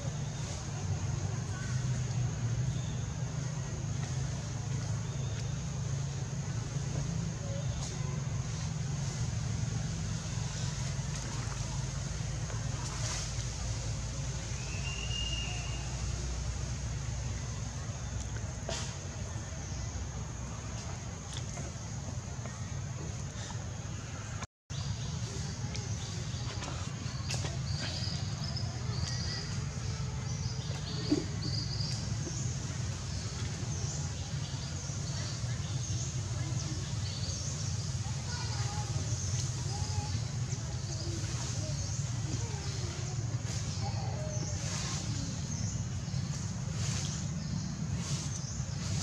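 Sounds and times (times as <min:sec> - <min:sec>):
faint hiss: 0:00.0 - 0:49.0
low outdoor rumble: 0:00.0 - 0:49.0
thin high whistle: 0:14.6 - 0:16.0.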